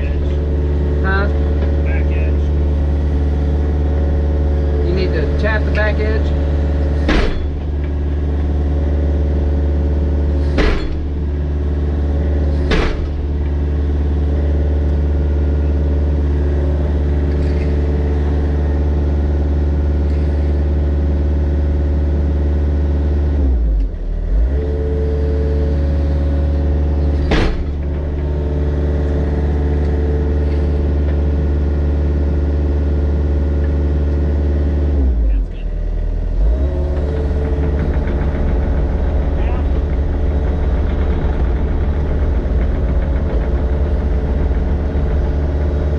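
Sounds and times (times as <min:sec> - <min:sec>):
excavator diesel engine running: 0:00.0 - 0:45.9
sharp knocks: 0:05.7 - 0:08.3, 0:10.4 - 0:11.4, 0:12.6 - 0:13.6, 0:27.2 - 0:31.4, 0:36.6 - 0:45.9.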